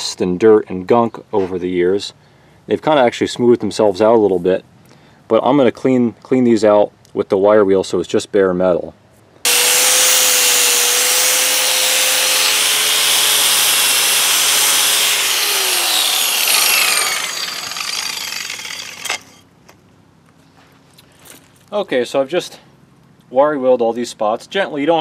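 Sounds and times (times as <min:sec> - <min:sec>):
wire wheel grinder on metal: 0:09.5 - 0:19.4.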